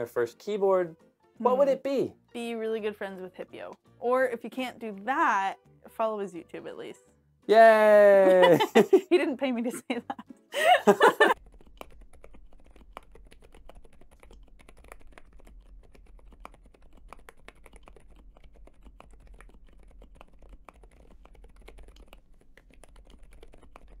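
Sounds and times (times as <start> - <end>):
fast typing on mechanical keyboard: 11.3 - 24.0.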